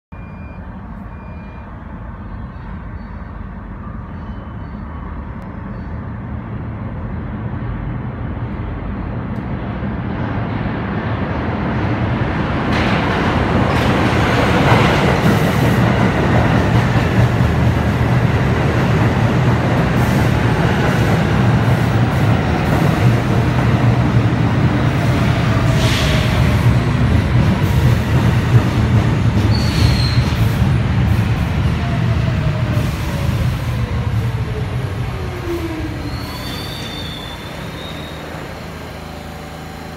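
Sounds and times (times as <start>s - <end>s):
subway train rumble: 0.2s - 39.9s
train whines: 0.2s - 39.9s.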